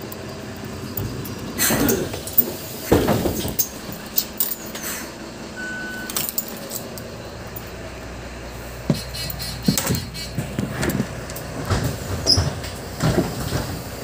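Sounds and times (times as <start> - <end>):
body rattling and clinking: 0.0 - 4.8, 6.0 - 7.8
bus engine rumble: 0.0 - 14.0
short high beep: 5.6 - 6.2.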